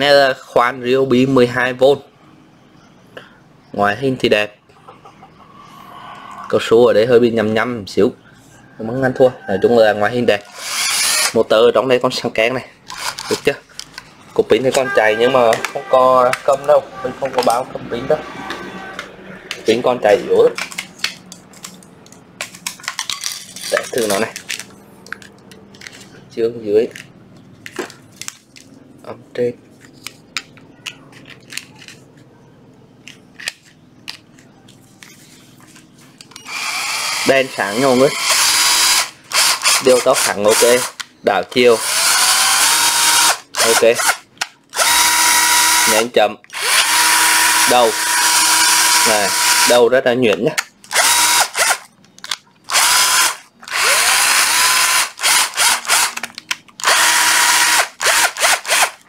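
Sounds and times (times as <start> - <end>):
cordless drill motor whine: 10.5 - 11.4, 36.4 - 40.9, 41.8 - 44.2, 44.8 - 49.7, 50.9 - 51.8, 52.7 - 56.1, 56.8 - 59.0
sharp plastic clicks: 50.3 - 59.0.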